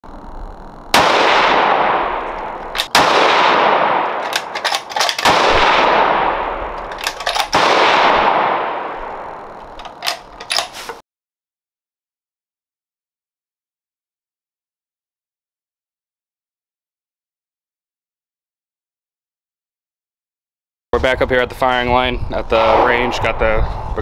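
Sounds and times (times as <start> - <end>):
rifle shots with rolling echo: 0.9 - 10.7
rifle bolt clicking: 2.3 - 3.1, 4.1 - 5.7, 6.7 - 7.7, 9.6 - 11.0.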